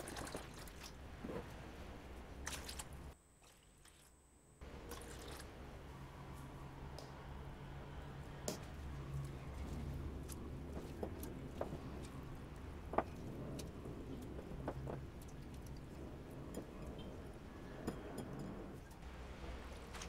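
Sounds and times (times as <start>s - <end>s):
low steady hum: 4.3s - 20.0s.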